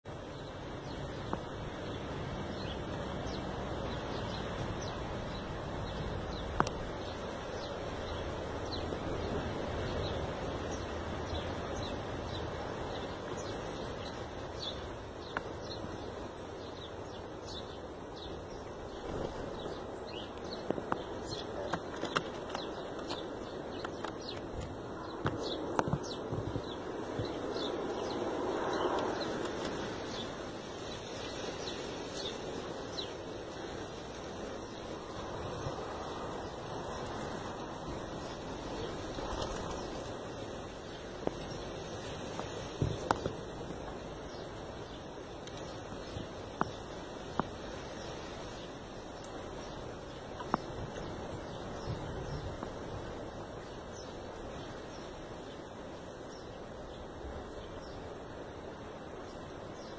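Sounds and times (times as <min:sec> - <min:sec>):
breeze outdoors: 0:00.0 - 0:59.9
small birds chirping: 0:00.0 - 0:59.9
wing flutters: 0:18.9 - 0:40.7.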